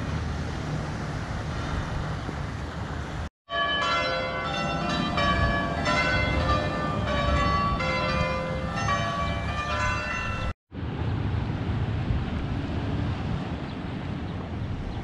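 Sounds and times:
church bells ringing: 0:03.5 - 0:10.6.

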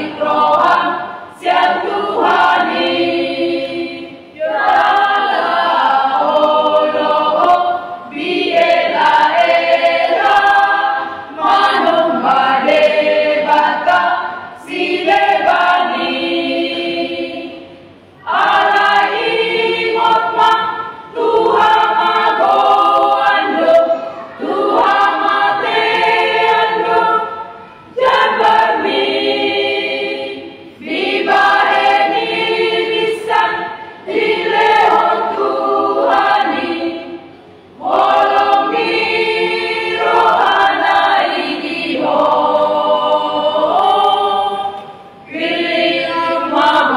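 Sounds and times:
women's choir singing a hymn: 0:00.0 - 0:46.9.

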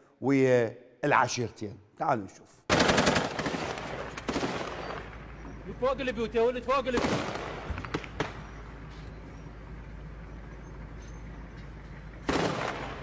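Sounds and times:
gunshots: 0:02.7 - 0:05.2, 0:06.9 - 0:08.5, 0:12.2 - 0:13.0.

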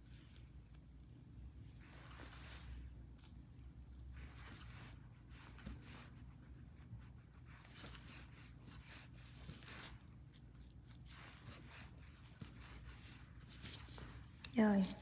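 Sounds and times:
faint scratchy rustles: 0:01.6 - 0:15.0.

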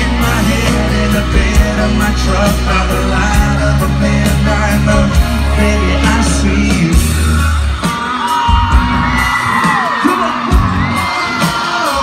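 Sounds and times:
live country-pop band and singing: 0:00.0 - 0:12.0
audience yelling and whooping: 0:07.1 - 0:12.0.

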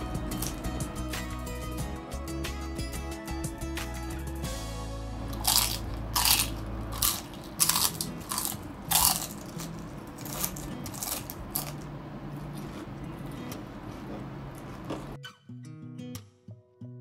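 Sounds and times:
crisp crunching while chewing: 0:00.3 - 0:00.6, 0:05.3 - 0:13.6.

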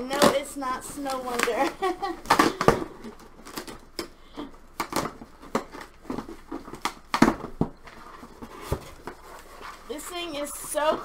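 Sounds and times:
cardboard box rustling: 0:04.9 - 0:11.0.

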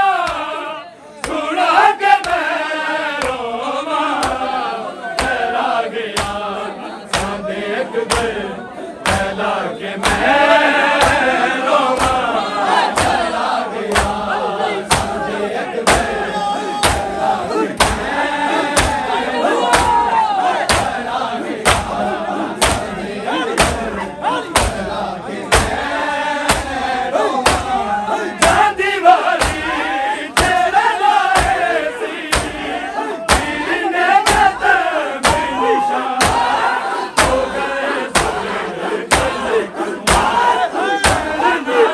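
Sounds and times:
men chanting in unison: 0:00.0 - 0:41.9
rhythmic chest beating thumps: 0:00.2 - 0:00.6, 0:02.1 - 0:41.9
hands striking chests: 0:12.9 - 0:13.3, 0:13.9 - 0:14.2, 0:14.9 - 0:15.2, 0:15.8 - 0:16.2, 0:16.8 - 0:21.0, 0:21.6 - 0:22.0, 0:22.6 - 0:23.0, 0:23.6 - 0:23.9, 0:24.5 - 0:24.9, 0:25.5 - 0:26.8, 0:27.4 - 0:27.8, 0:29.4 - 0:29.8, 0:30.4 - 0:30.7, 0:31.3 - 0:34.6, 0:35.2 - 0:35.6, 0:36.2 - 0:37.5, 0:38.1 - 0:39.4, 0:40.0 - 0:41.4.

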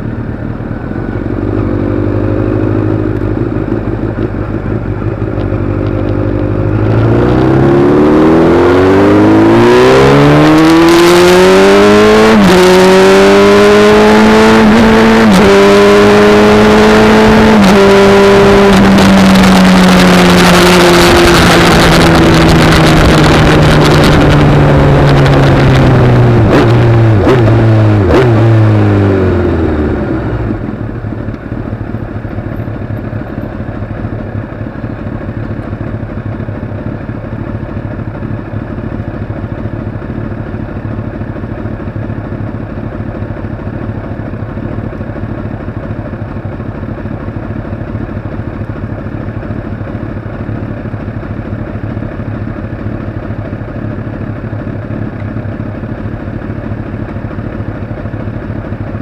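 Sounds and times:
vehicle engine accelerating: 0:00.0 - 0:33.8
wind rush on microphone: 0:19.3 - 0:26.5.

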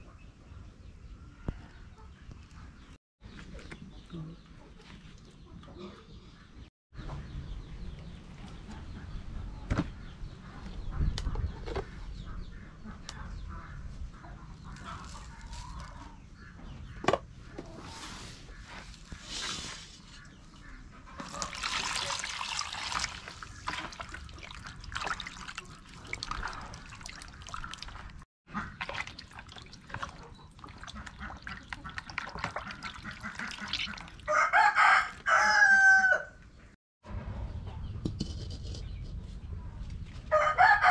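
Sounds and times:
water pouring into plastic basin: 0:21.2 - 0:28.2, 0:28.8 - 0:34.3
knocks and splashes of handling: 0:21.2 - 0:34.3
rooster crowing: 0:34.3 - 0:36.4, 0:40.3 - 0:40.9.

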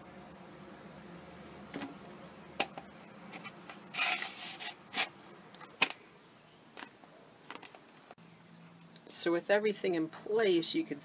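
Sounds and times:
short rubbing scrape: 0:03.3 - 0:05.2.

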